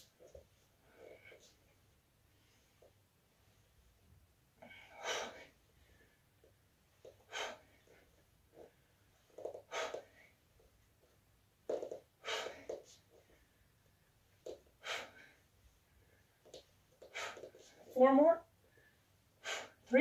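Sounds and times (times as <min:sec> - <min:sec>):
woman breathing hard: 0:04.6 - 0:06.4, 0:07.2 - 0:08.7, 0:09.6 - 0:10.4, 0:12.2 - 0:13.8, 0:14.7 - 0:16.3, 0:17.0 - 0:17.8, 0:18.6 - 0:19.9.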